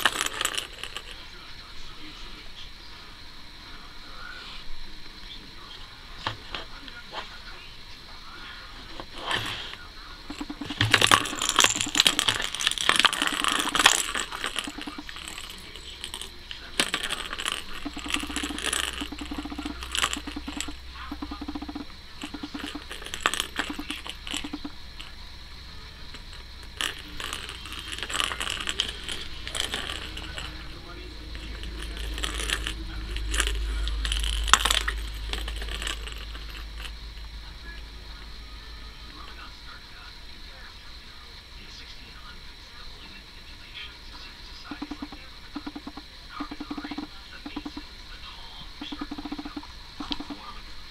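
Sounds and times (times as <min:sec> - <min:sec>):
plastic ball rattling in track: 0:00.0 - 0:01.2, 0:10.3 - 0:25.2, 0:26.1 - 0:37.0, 0:44.7 - 0:47.8, 0:48.8 - 0:50.4.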